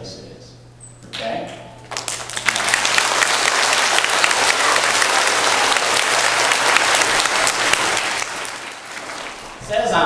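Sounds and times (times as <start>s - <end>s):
children applauding: 1.9s - 9.6s.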